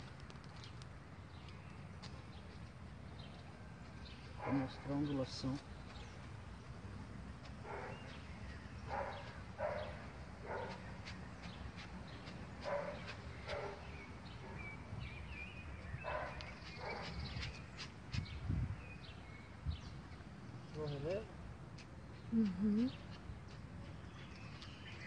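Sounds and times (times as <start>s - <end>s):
dog barking: 4.4s - 4.8s, 7.6s - 8.1s, 8.9s - 10.8s, 12.6s - 13.9s, 16.0s - 17.2s.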